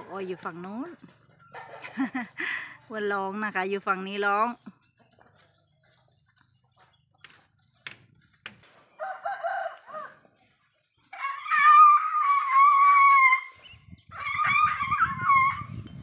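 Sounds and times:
roosters crowing: 8.8 - 15.8.

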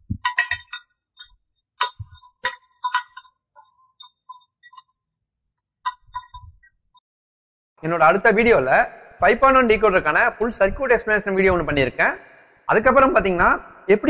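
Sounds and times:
metallic clinks of wires: 0.0 - 4.9.

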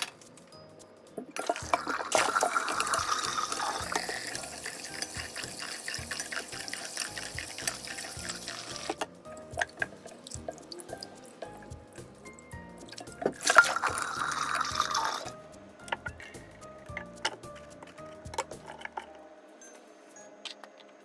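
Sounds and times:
tap running into water: 1.2 - 11.8, 12.8 - 16.1
water drips: 1.2 - 15.4.

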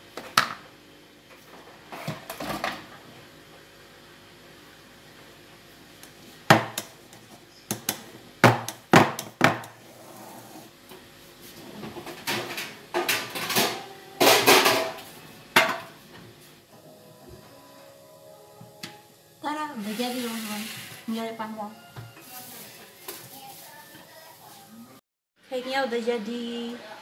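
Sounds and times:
metal bakeware clanking: 12.2 - 15.0.

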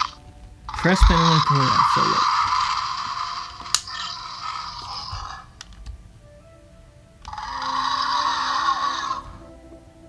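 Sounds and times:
toy electronic sound effects: 7.3 - 9.2.

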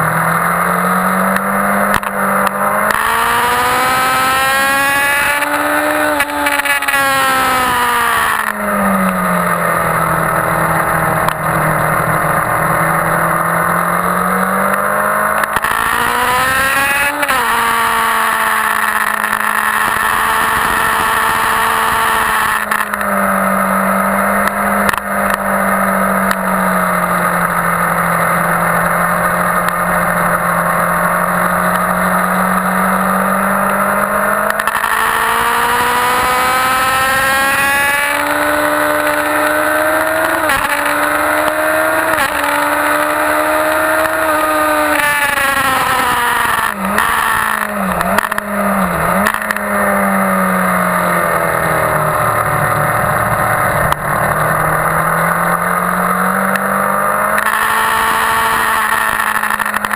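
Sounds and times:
motorcycle engine at high revs: 0.0 - 59.9.

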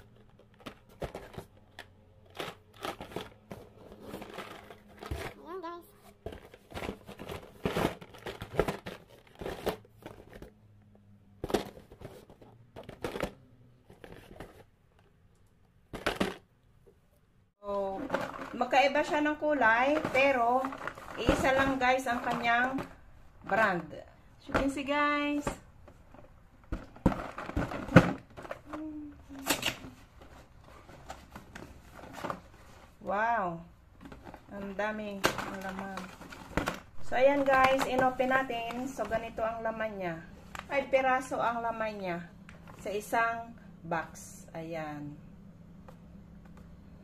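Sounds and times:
cardboard boxes rustling and scraping: 0.1 - 10.6, 11.4 - 14.7, 29.9 - 33.0
person humming: 28.7 - 29.5.

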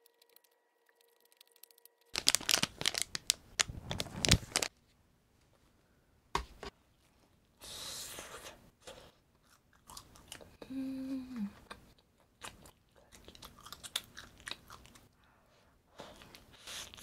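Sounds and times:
food wrapper tearing and crinkling: 0.1 - 4.7.

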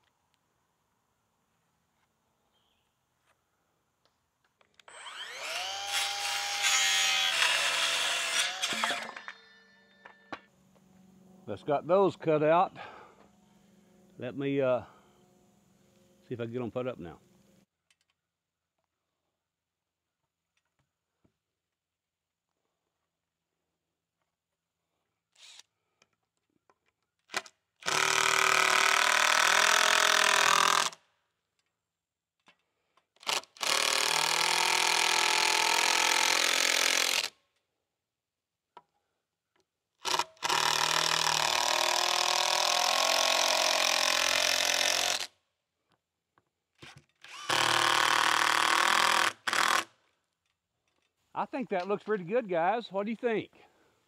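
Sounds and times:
cordless drill driving screws: 4.8 - 9.7, 25.4 - 25.7, 27.3 - 31.0, 33.2 - 37.4, 40.0 - 45.3, 46.8 - 49.9.

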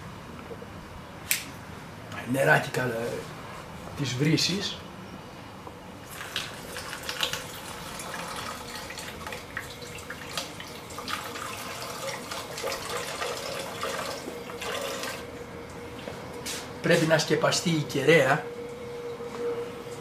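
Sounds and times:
water pouring into a tank: 6.1 - 15.3.

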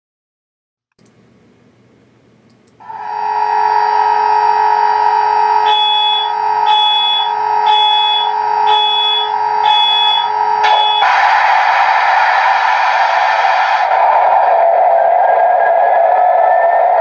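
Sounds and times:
steady locomotive tone: 2.8 - 17.0
high beep: 5.6 - 11.1
loud rushing hiss: 10.4 - 15.3.

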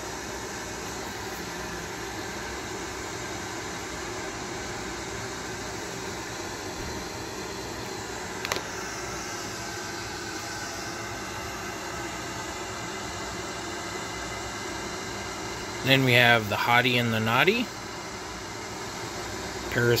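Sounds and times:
faint hum: 0.0 - 20.0
dvd case click: 8.4 - 8.7.

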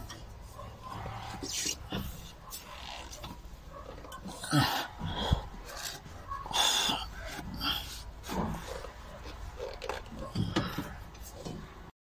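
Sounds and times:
person breathing hard: 4.4 - 8.7.

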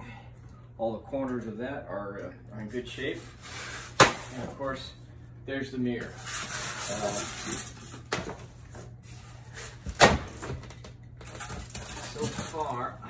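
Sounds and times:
packing rustling and scraping: 6.0 - 10.0, 11.2 - 12.9.

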